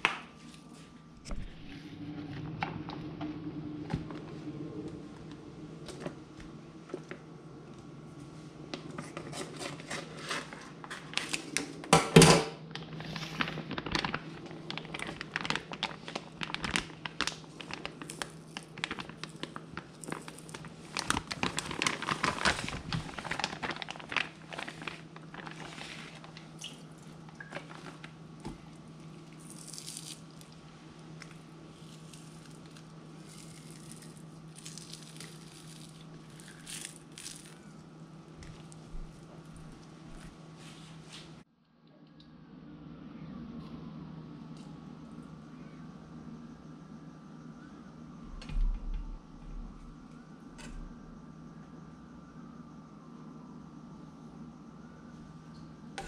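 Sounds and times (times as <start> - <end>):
plastic bag crinkling: 9.0 - 11.8, 12.7 - 37.8.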